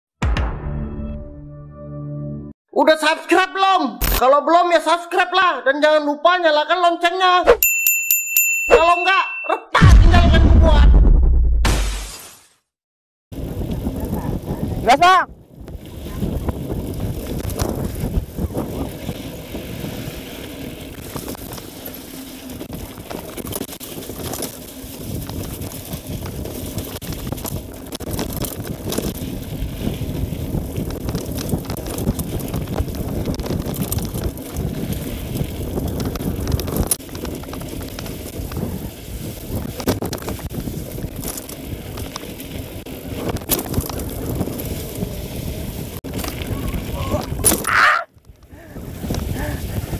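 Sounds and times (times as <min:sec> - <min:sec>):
wind on microphone: 0:13.3 - 0:21.6, 0:22.6 - 0:49.9
bike tyres rumbling on dirt: 0:13.3 - 0:49.9
bike knocks and rattles: 0:16.5 - 0:49.4.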